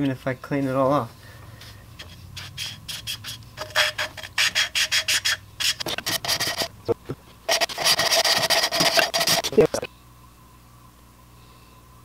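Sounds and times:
valve grinding against seat: 1.8 - 9.8.

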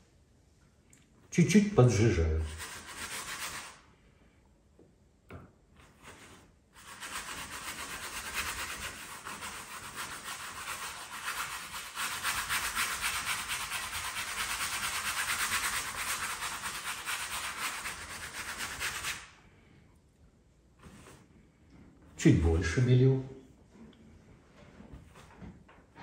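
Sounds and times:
brush scrubbing paint on canvas: 2.4 - 3.8, 5.8 - 19.4.

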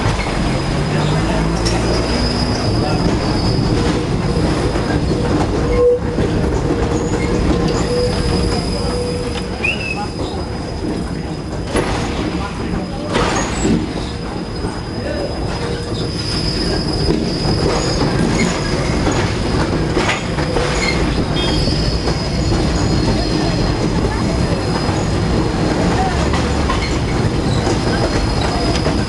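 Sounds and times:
tram rumbling on rails: 0.0 - 29.0
wheels squealing on track: 0.0 - 29.0
sharp clacks: 15.5 - 29.0.

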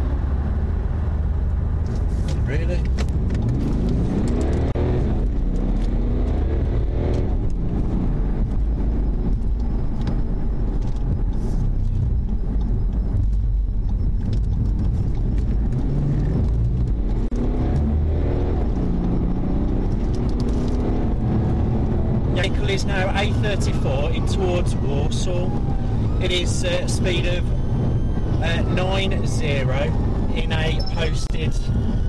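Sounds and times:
car engine accelerating: 0.0 - 32.0
tyre and wind rumble: 0.0 - 32.0.

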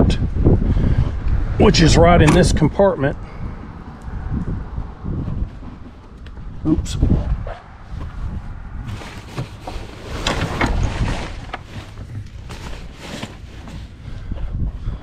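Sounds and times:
wind buffeting microphone: 0.0 - 13.0, 13.9 - 15.0
clicks and rustles of gear: 8.9 - 13.9.

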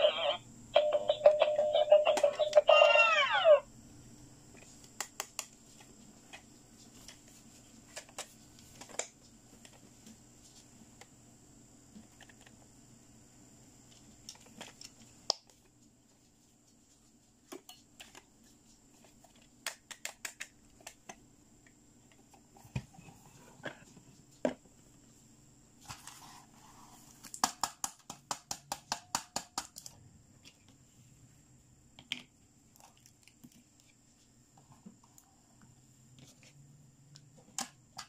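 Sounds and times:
plastic toys clicking and tapping: 19.6 - 21.2.

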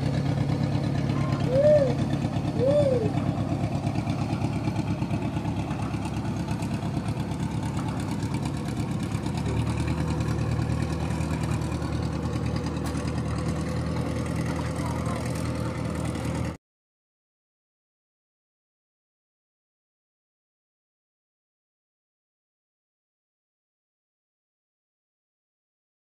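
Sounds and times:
diesel boat engine running: 0.0 - 16.6.

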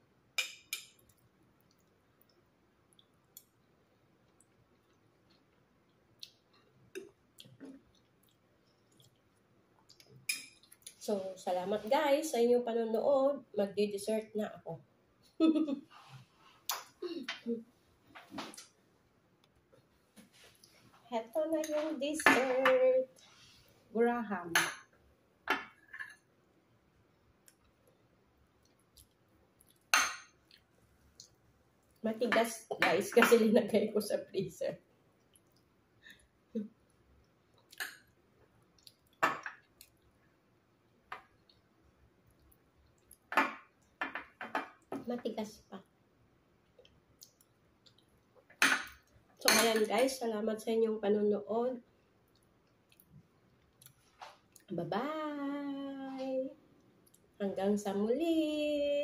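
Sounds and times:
person chewing: 0.9 - 11.0, 27.4 - 32.0, 36.8 - 40.2, 46.6 - 48.4, 52.0 - 54.7.

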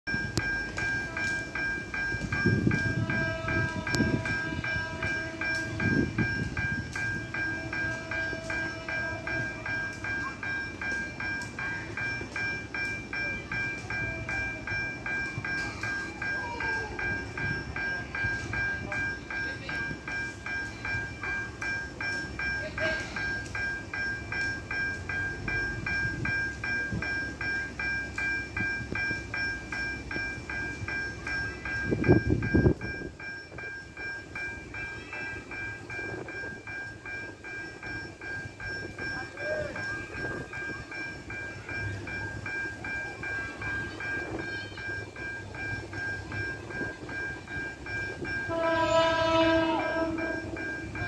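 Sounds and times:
level crossing warning bell: 0.1 - 51.0.

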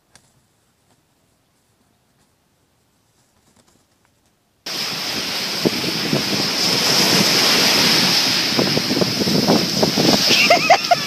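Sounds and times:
surf breaking on beach: 4.7 - 11.0
wind buffeting microphone: 4.7 - 11.0.

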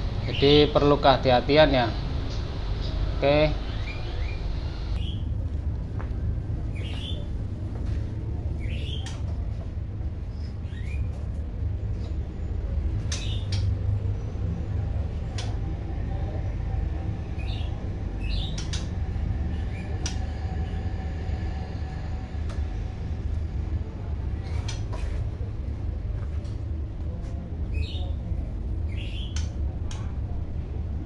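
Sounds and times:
steady low rumble: 0.0 - 31.0
songbird chirps: 2.2 - 5.3, 6.7 - 9.7, 10.3 - 22.1, 27.7 - 30.1.

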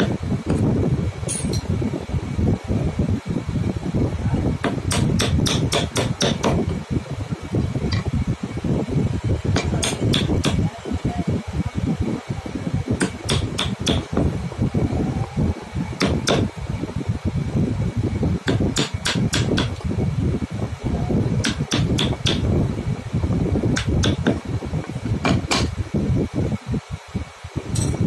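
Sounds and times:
hammer striking chisel: 4.6 - 6.6, 9.6 - 10.6, 13.0 - 14.1, 16.0 - 16.5, 18.5 - 19.8, 21.4 - 22.4
low rumble: 6.6 - 18.8.

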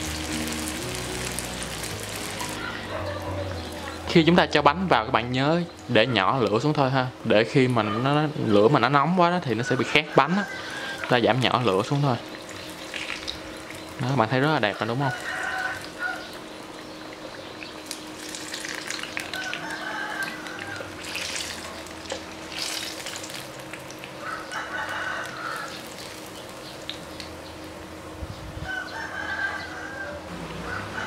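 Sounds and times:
bananas sizzling in oil: 0.0 - 2.9, 8.6 - 28.0
bird calling: 2.4 - 4.1, 9.4 - 11.2.

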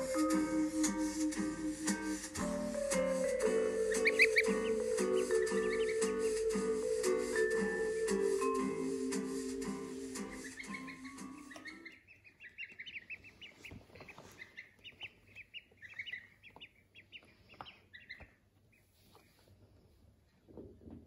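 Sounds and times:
slideshow music: 0.0 - 11.8
ducklings peeping: 0.0 - 19.5.

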